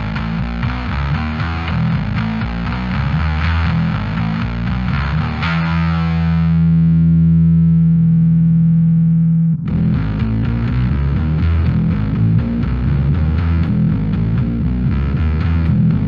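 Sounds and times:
distorted bass guitar riff: 0:00.0 - 0:16.0.

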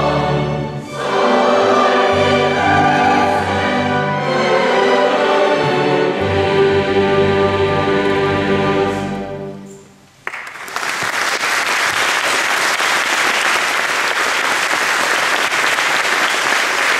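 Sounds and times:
choir and orchestra chord: 0:00.0 - 0:09.8
audience applauding: 0:10.2 - 0:16.9.

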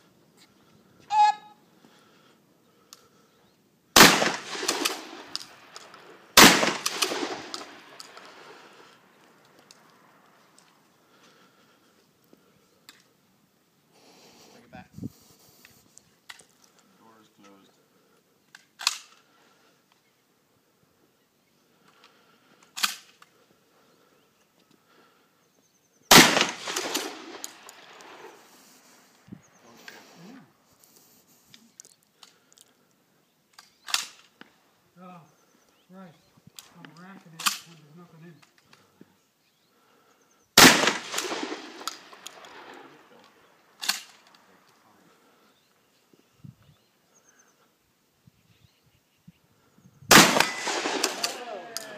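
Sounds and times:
shotgun blasts: 0:04.0 - 0:08.4, 0:26.1 - 0:28.5, 0:40.6 - 0:43.2, 0:50.1 - 0:51.9.

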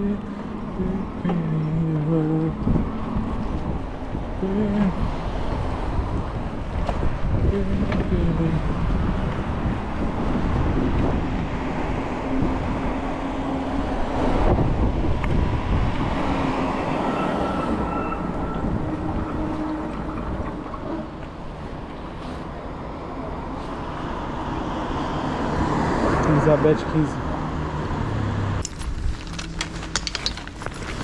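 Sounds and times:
wind on microphone: 0:00.0 - 0:22.8
road traffic noise: 0:00.0 - 0:31.0
passing engine tones: 0:15.6 - 0:22.4.

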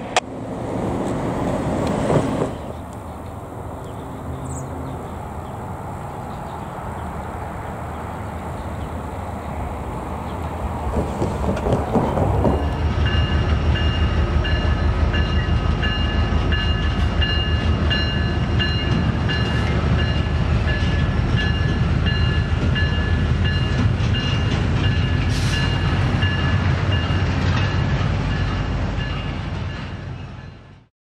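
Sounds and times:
freight train rolling past: 0:00.0 - 0:30.9
crossing bell ringing: 0:12.6 - 0:30.8.

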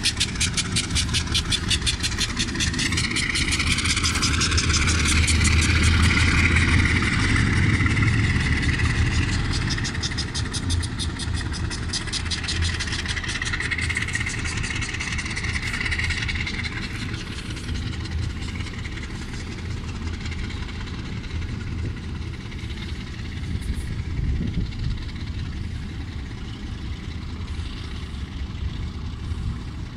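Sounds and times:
diesel locomotive engine running: 0:00.0 - 0:29.9.

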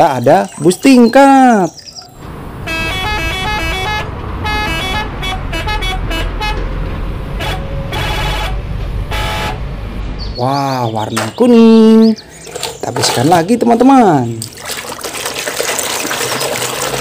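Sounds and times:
bus engine rumble: 0:02.1 - 0:12.4.

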